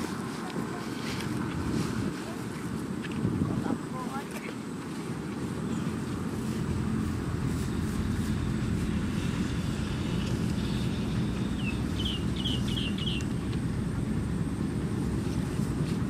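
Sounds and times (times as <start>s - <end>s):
wind on microphone: 0.0s - 4.2s
bird chirping: 10.6s - 13.4s.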